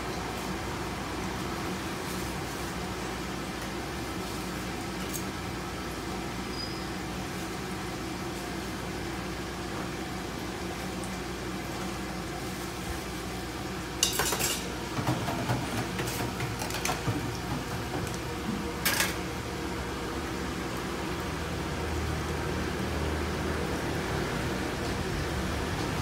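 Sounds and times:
dishes and utensils clattering: 14.0s - 17.7s, 18.8s - 19.2s.

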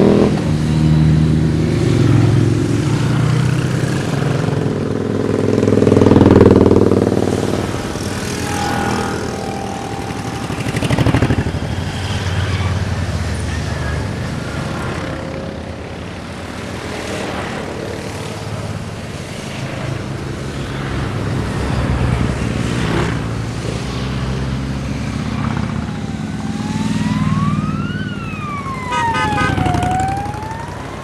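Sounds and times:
motorcycles passing: 0.0s - 31.0s
siren wailing: 7.6s - 14.2s, 25.6s - 31.0s.

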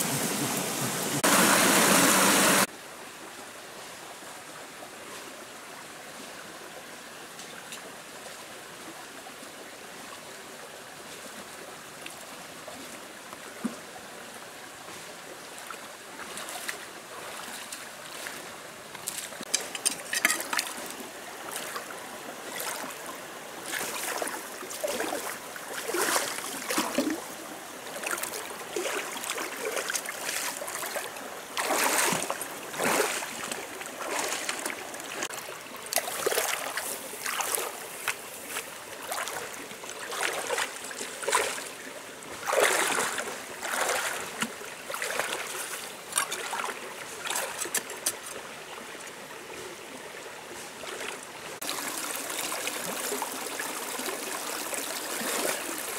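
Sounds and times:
stream running over rocks: 0.0s - 55.9s
splashes of person wading: 15.6s - 27.2s, 27.9s - 48.4s, 55.0s - 55.8s.

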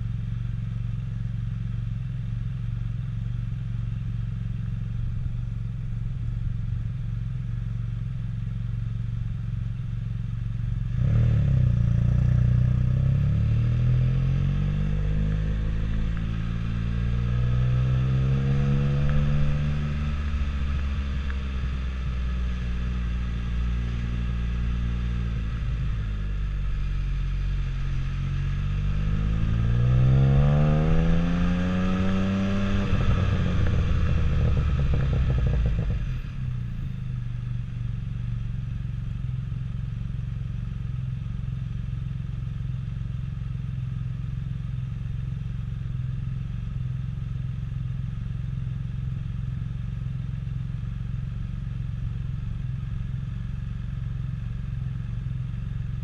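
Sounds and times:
roadster engine accelerating: 10.8s - 37.4s.

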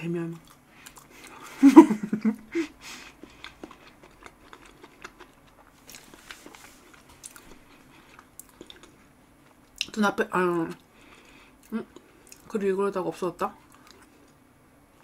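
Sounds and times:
close chewing with wet mouth sounds: 0.3s - 1.4s, 3.0s - 12.6s, 13.5s - 14.4s.

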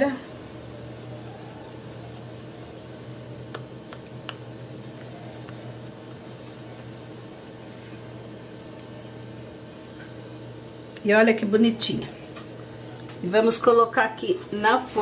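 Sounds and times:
low appliance hum: 0.0s - 15.0s.

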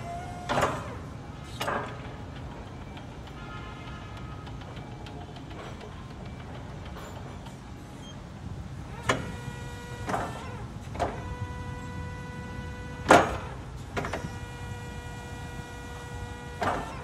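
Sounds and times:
forklift motor whining: 0.0s - 17.0s
clunk: 0.4s - 7.6s, 13.0s - 14.5s, 16.6s - 17.0s.

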